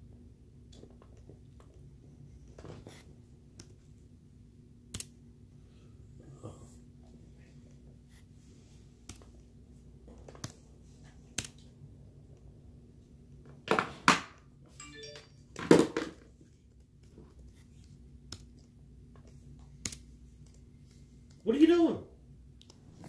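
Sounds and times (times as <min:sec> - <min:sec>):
faint steady hum: 0:00.0 - 0:13.7.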